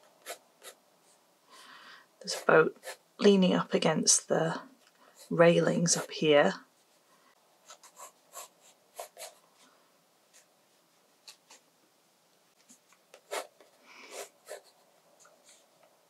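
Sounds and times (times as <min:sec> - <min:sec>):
pencil strokes on paper: 0:07.6 - 0:09.7, 0:12.7 - 0:15.8.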